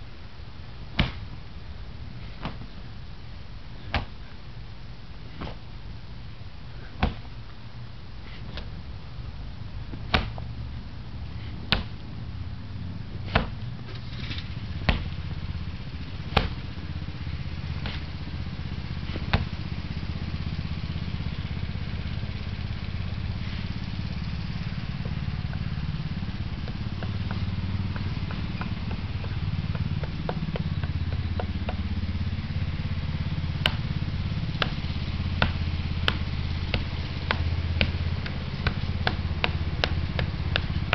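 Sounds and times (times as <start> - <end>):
strikes knocking on wooden post: 26.6 - 31.8.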